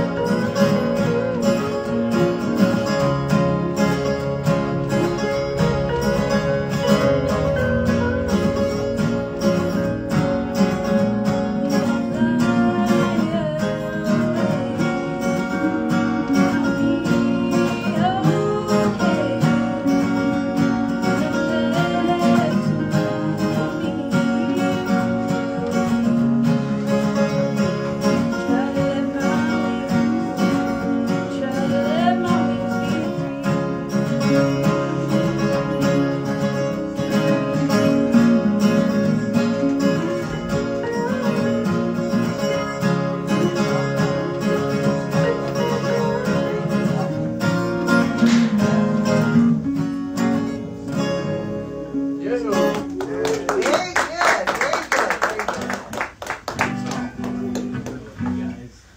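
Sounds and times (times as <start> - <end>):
woman singing: 0.0 - 2.8, 11.5 - 26.3, 27.8 - 50.5
acoustic guitars strummed: 0.0 - 58.9.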